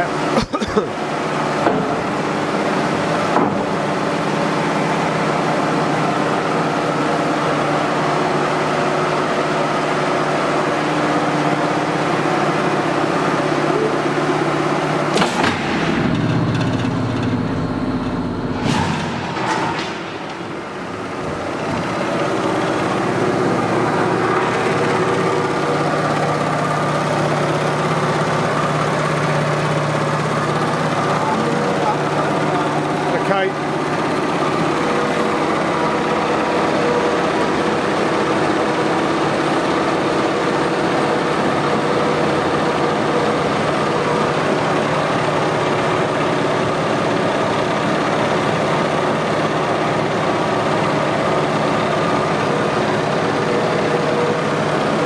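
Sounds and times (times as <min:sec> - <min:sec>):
hydraulic machine humming: 0:00.0 - 0:55.0
sharp machine clack: 0:15.0 - 0:35.3.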